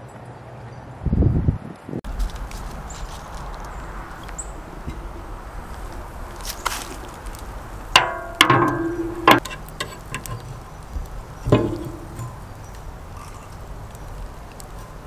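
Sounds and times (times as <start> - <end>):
metal clanks with ringing tone: 8.0 - 10.4, 11.5 - 12.4.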